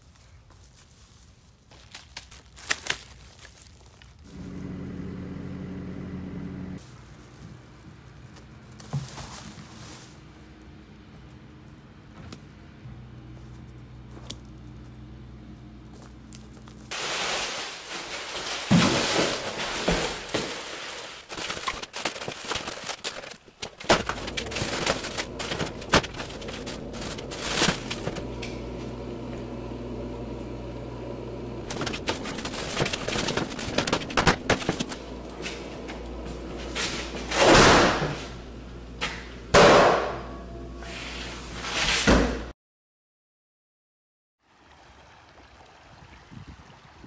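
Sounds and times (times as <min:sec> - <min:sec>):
plastic garbage bag rustling: 0:08.1 - 0:10.4, 0:16.8 - 0:29.2, 0:31.5 - 0:38.8
freezer door opening: 0:21.3 - 0:29.3, 0:31.5 - 0:40.2.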